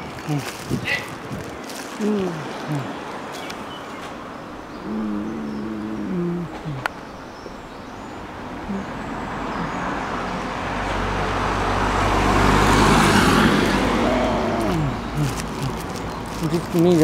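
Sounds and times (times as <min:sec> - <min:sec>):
car driving past: 0:08.9 - 0:15.1.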